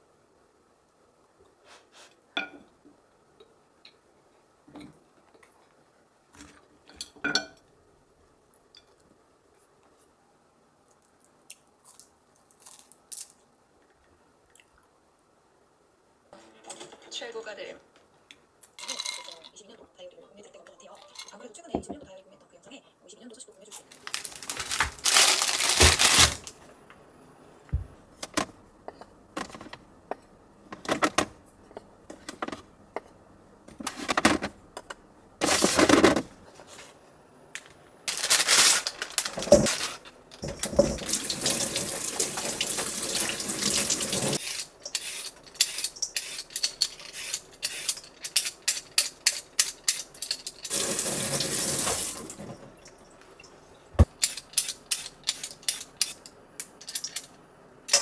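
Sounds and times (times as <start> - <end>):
plastic bags rustling: 23.8 - 26.7, 35.4 - 37.0, 38.0 - 44.4.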